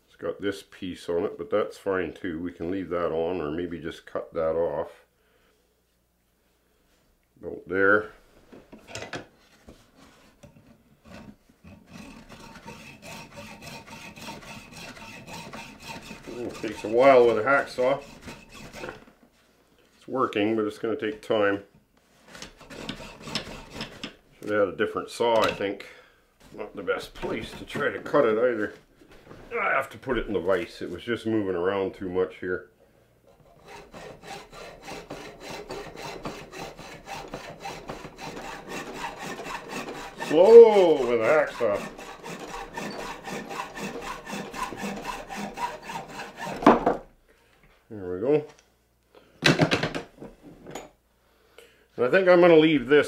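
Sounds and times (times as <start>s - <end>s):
hacksaw cutting through antler: 11.1s - 19.0s, 22.4s - 24.2s, 33.4s - 46.9s.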